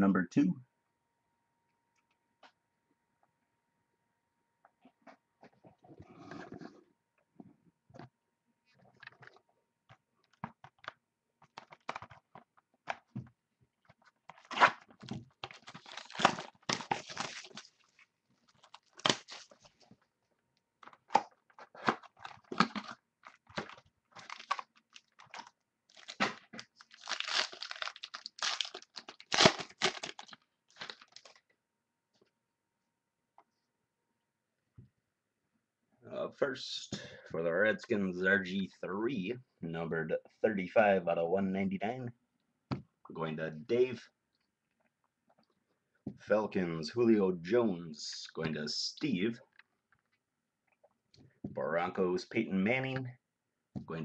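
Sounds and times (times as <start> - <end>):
plastic wrapping crackling: 14.0 - 19.9, 20.8 - 31.4.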